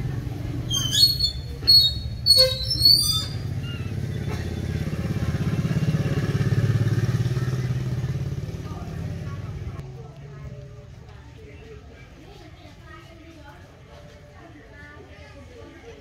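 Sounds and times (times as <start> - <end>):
young mongooses squealing: 0.7 - 4.4.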